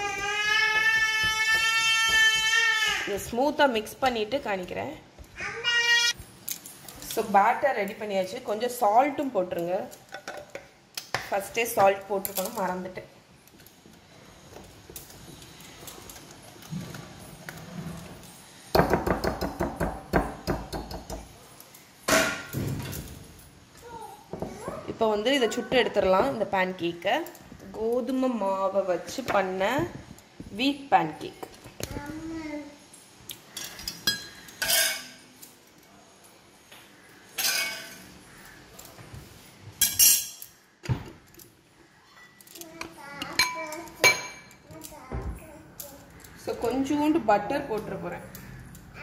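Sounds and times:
kitchen utensils clattering: 33.5s - 35.4s, 37.3s - 38.2s, 39.8s - 40.6s.

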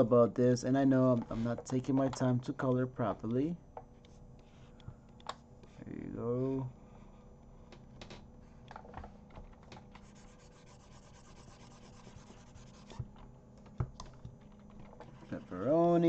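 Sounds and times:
faint steady hum: 0.0s - 16.0s
fine rapid scratching: 10.0s - 13.1s, 14.8s - 16.0s.

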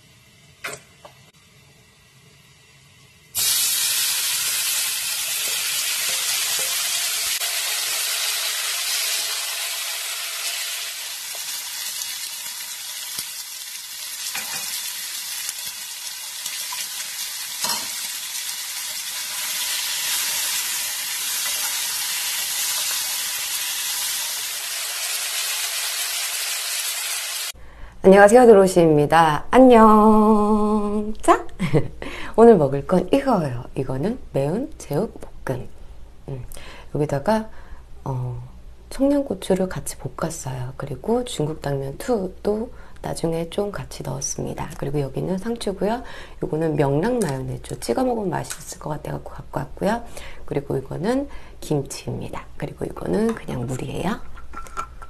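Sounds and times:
pork sizzling in a wok: 0.0s - 27.6s.

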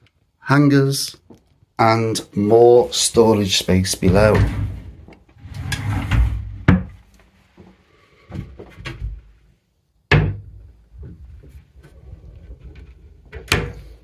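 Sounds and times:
wooden drawer sliding: 4.0s - 7.0s.

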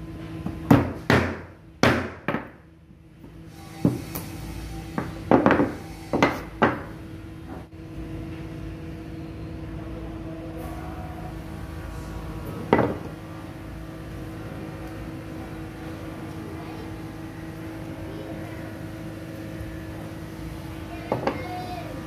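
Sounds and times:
steady hum: 0.0s - 22.0s
hammer striking chisel: 5.0s - 6.9s.

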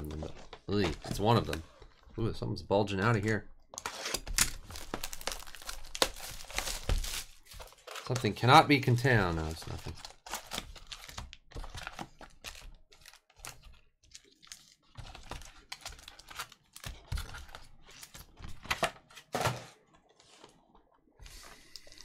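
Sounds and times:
foil card packs crinkling: 3.8s - 18.8s.

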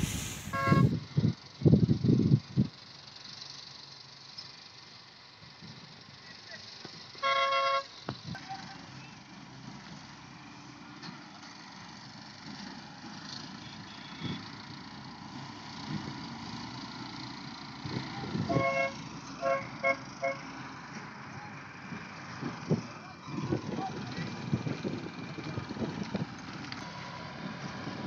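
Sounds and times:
farm machinery engines running: 0.0s - 7.2s, 8.0s - 28.0s
vehicle horn blaring: 0.1s - 0.9s, 7.2s - 7.9s, 18.5s - 20.4s
vehicle horn toots: 0.2s - 0.9s, 7.2s - 7.9s, 18.5s - 20.5s.

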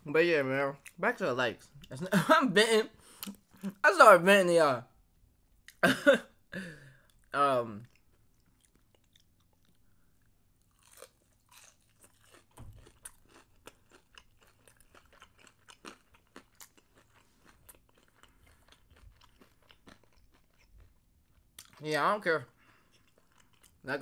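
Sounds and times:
crunching and chewing fried food: 7.0s - 24.0s.

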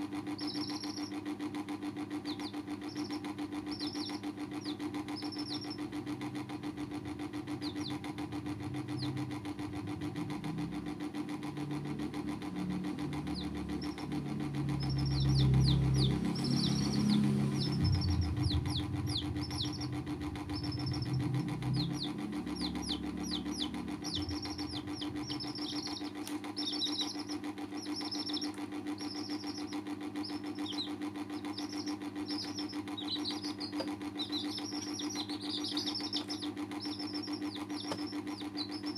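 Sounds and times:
baby chicks peeping: 0.0s - 38.9s
steady mechanical hum: 0.0s - 38.9s
low rumble: 15.0s - 22.2s.

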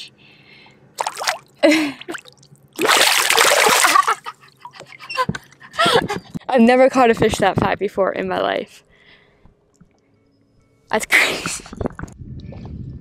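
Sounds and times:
fish splashing in water: 1.0s - 1.5s, 2.1s - 4.3s
water dripping: 1.0s - 1.5s, 2.1s - 4.9s.

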